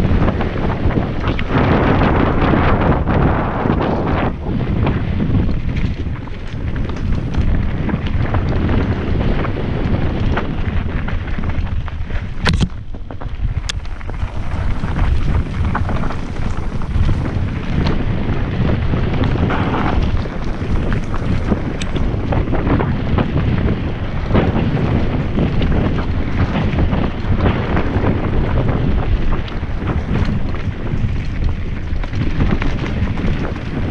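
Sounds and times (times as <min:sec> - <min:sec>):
bike tyres rumbling on dirt: 0:00.0 - 0:33.9
wind buffeting microphone: 0:00.0 - 0:33.9
bike rattles and knocks: 0:10.3 - 0:33.9.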